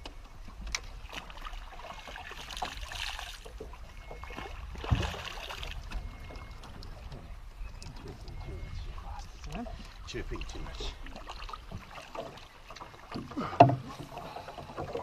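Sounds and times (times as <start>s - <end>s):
water lapping against boat: 0.0s - 15.0s.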